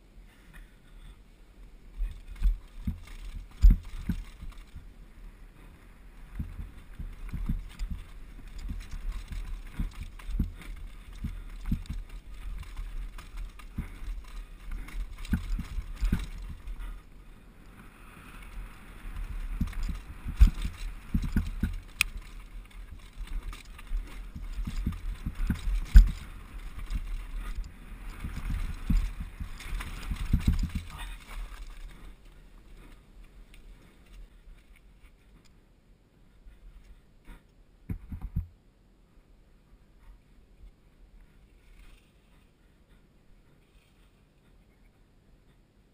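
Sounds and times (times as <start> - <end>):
steady low rumble: 0.9 - 35.0
mountain bike clattering over rocks: 2.0 - 4.9, 6.3 - 17.1, 18.2 - 33.0.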